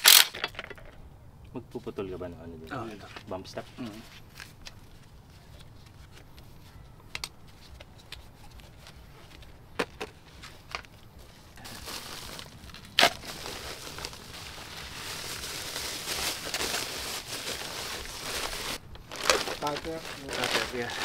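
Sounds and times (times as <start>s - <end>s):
plastic sheet crinkling: 10.2s - 21.0s.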